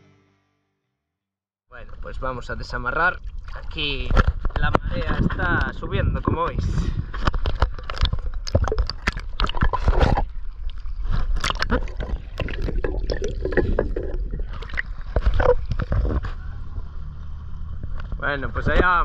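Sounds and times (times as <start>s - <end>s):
shallow water splashing: 2.7s - 4.4s, 7.3s - 16.4s.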